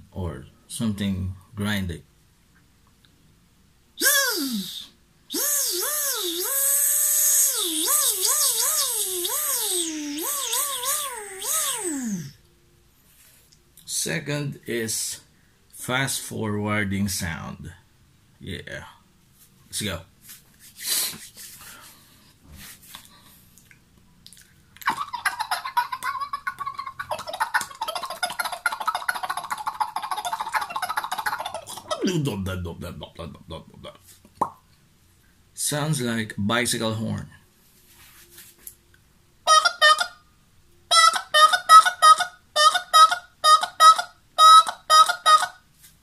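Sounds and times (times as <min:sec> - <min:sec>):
man imitating bicycle horn: 0:04.0 - 0:12.4
man imitating tape with mouth: 0:04.0 - 0:12.4, 0:22.9 - 0:32.4.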